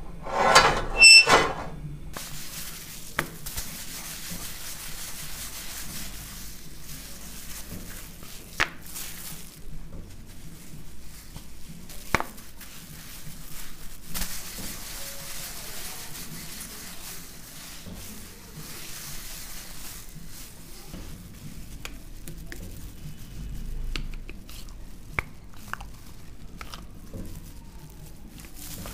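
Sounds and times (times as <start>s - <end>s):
rolling pin scraping over dough: 0.0s - 1.8s.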